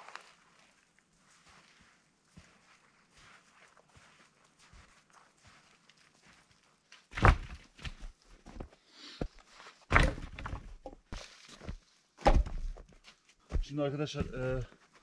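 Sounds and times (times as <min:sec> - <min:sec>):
footsteps in snow: 0:00.0 - 0:07.1
wood thuds: 0:07.1 - 0:08.0, 0:09.9 - 0:11.0, 0:12.2 - 0:12.8.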